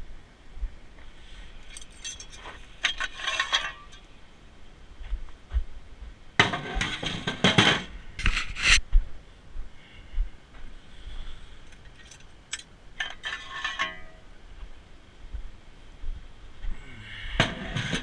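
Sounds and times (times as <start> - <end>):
metal hardware clinking: 1.6 - 4.1, 11.7 - 14.2.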